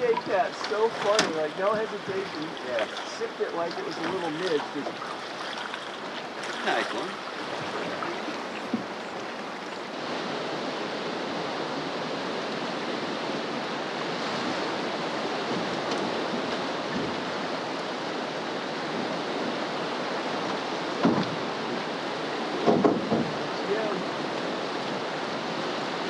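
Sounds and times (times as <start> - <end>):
river rushing: 0.0 - 26.0.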